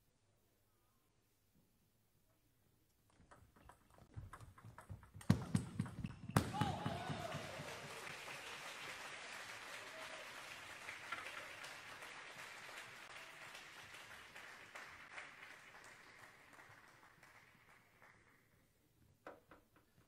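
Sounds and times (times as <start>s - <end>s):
crowd applauding: 5.3s - 18.5s.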